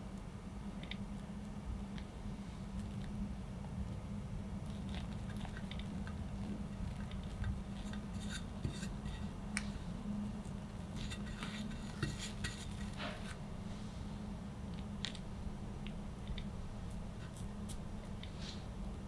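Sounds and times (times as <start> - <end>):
low steady hum: 0.0 - 19.0
palette knife scraping cream: 7.2 - 9.3, 11.0 - 13.4.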